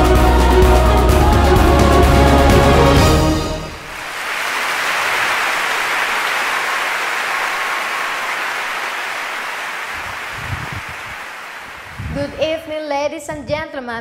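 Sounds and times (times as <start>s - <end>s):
audience applauding: 3.6s - 12.4s.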